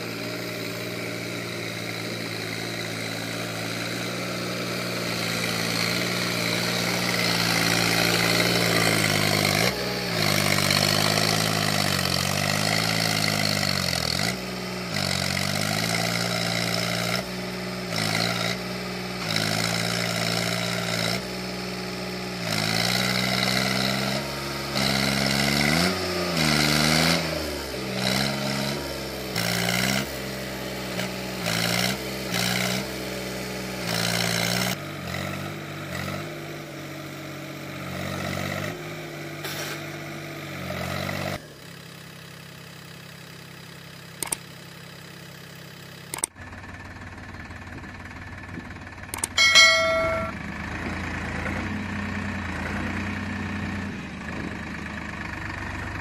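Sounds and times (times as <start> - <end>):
engine revving: 0.0 - 41.5
tractor diesel engine labouring: 0.0 - 56.0.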